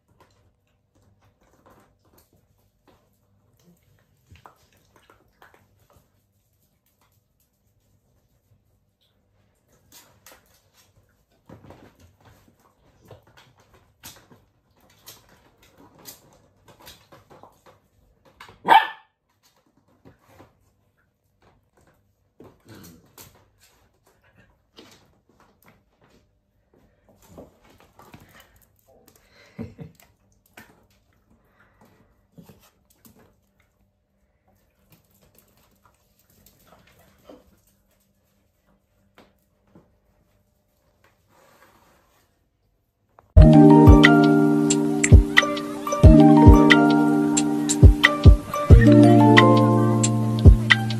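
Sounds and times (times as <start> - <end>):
puppy barking: 18.6 - 19.1.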